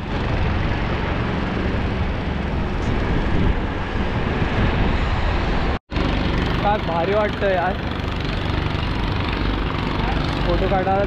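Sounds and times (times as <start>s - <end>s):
motorboat engine running: 5.9s - 11.0s.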